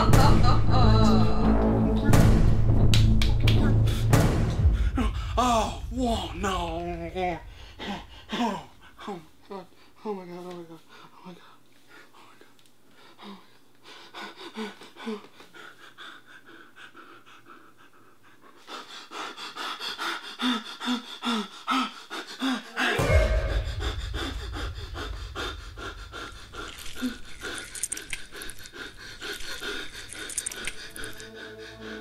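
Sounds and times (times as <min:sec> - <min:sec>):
person panting heavily: 0:03.7 - 0:32.0
deep low rumble: 0:23.0 - 0:29.3.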